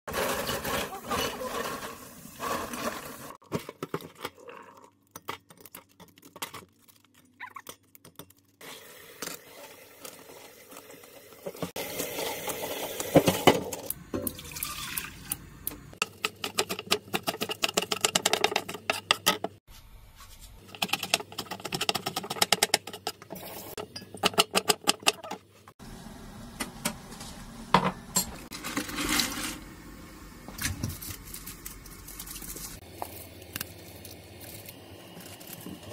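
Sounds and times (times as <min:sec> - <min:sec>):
tap water running into steel bowl: 0:08.7 - 0:15.8.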